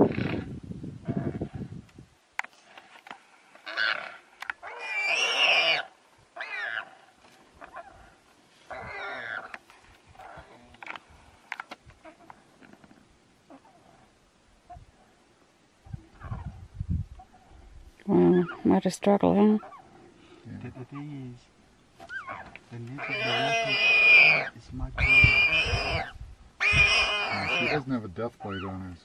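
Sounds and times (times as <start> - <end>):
warthog squealing in distress: 3.6 - 6.9, 8.7 - 9.5, 22.0 - 28.8
faint clicks and rustles: 9.4 - 14.0.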